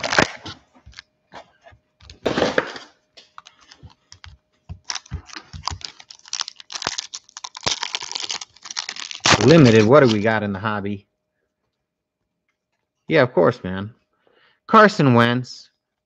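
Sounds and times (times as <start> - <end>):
foil wrapper crinkling: 0.0 - 1.0, 3.2 - 10.3.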